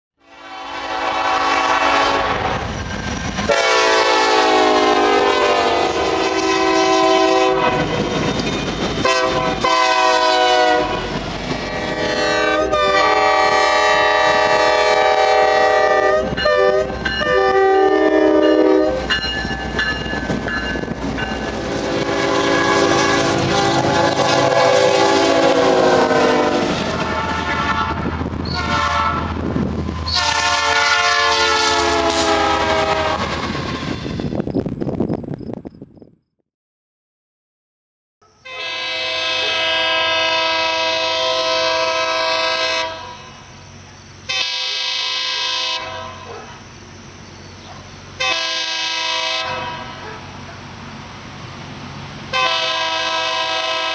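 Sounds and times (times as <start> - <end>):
locomotive air horn blasts: 0.2 - 2.6, 3.5 - 8.2, 9.0 - 19.2, 21.7 - 29.4, 30.0 - 33.9, 38.4 - 43.3, 44.3 - 46.3, 48.2 - 50.0, 52.3 - 53.9
passing train rumble and clatter: 0.2 - 36.2, 38.5 - 53.9.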